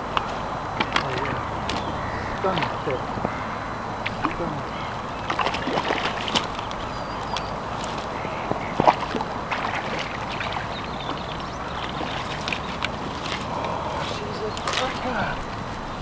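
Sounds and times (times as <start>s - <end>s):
fish splashing at surface: 5.2s - 6.7s, 8.8s - 13.6s
rain hissing: 12.9s - 16.0s.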